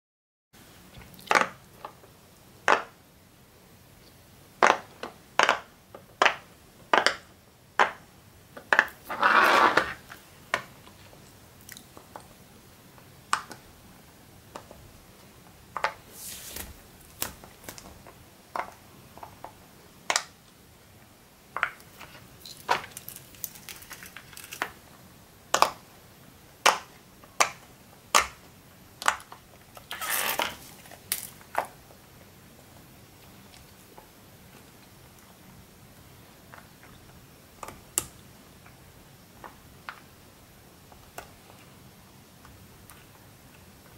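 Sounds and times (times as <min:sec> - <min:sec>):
rustling: 0:09.0 - 0:10.2.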